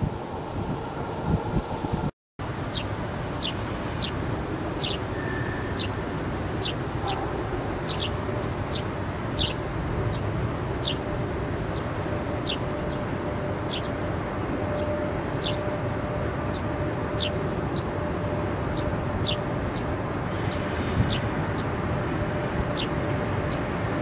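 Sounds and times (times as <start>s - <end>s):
small bird chirping: 4.8s - 6.0s, 6.6s - 11.0s, 11.7s - 13.1s, 13.7s - 14.0s, 14.7s - 15.6s.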